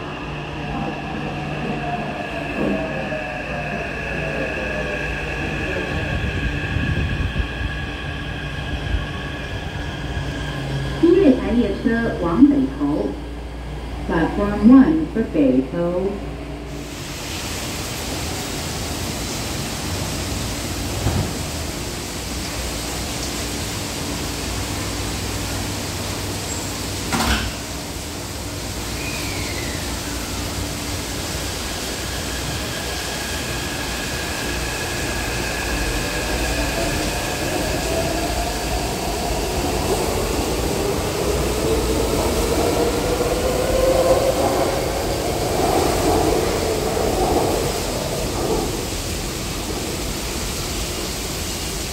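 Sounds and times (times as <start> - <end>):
train doors closing knock: 20.9 - 21.5, 27.1 - 27.7.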